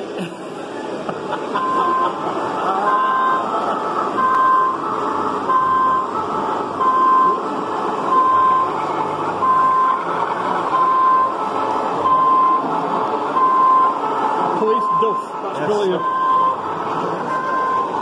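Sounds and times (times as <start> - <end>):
two-note siren: 4.2 - 7.4, 8.0 - 18.0.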